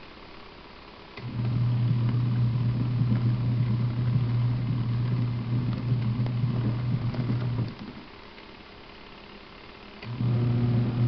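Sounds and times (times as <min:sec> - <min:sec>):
washing machine motor humming: 0:01.2 - 0:08.1, 0:10.0 - 0:11.0.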